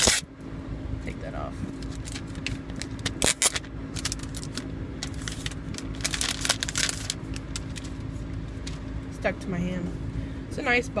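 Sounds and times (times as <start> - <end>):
plastic wrap crinkling: 1.8 - 8.0.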